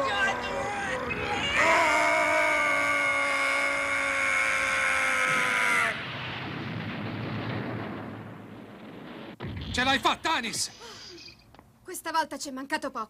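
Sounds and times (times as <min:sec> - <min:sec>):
monster screaming: 0:01.5 - 0:06.0
rushing blast noise: 0:05.1 - 0:10.8.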